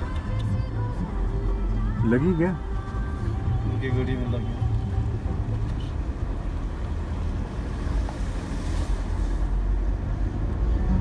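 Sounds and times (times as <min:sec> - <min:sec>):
vehicle engine and tyres rumbling: 0:00.0 - 0:11.0.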